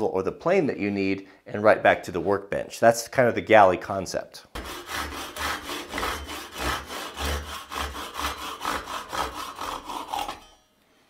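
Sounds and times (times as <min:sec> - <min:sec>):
handsaw cutting wood: 0:04.5 - 0:10.6.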